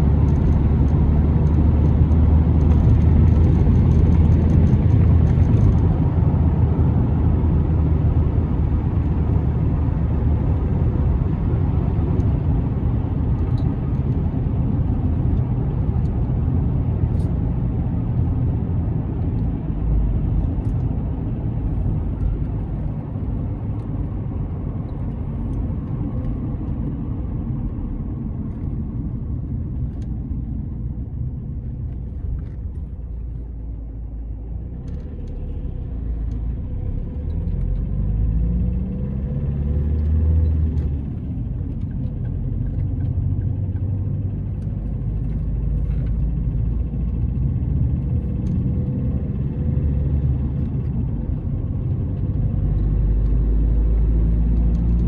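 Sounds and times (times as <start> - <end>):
car driving on road: 0.0 - 55.0.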